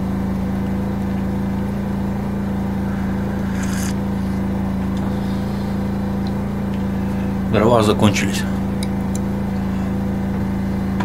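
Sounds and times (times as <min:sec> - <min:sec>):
low mechanical hum: 0:00.0 - 0:11.0
sipping from a mug: 0:02.5 - 0:05.8.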